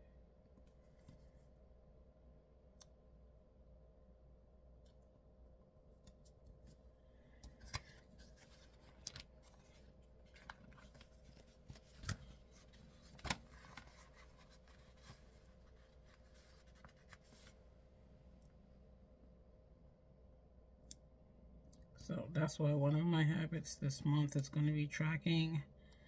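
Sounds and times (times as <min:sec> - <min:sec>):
paper pages rustling: 0:07.4 - 0:17.7.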